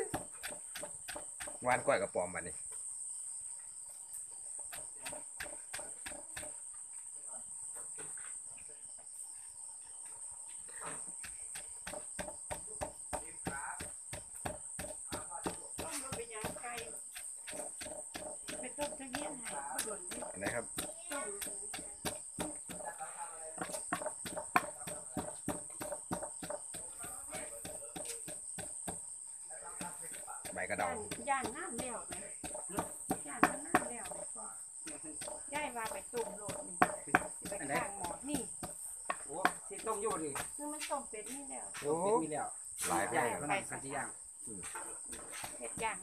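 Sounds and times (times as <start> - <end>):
crickets trilling: 0.0 - 46.0
sharp knocks: 11.5 - 22.8, 23.6 - 29.0, 29.8 - 34.3, 35.2 - 40.6.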